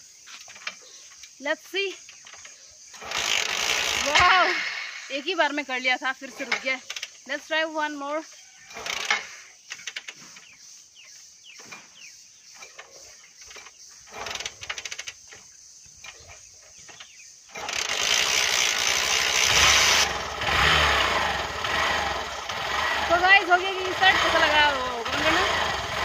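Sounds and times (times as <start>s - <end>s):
motorcycle engine running: 17.0s - 26.0s.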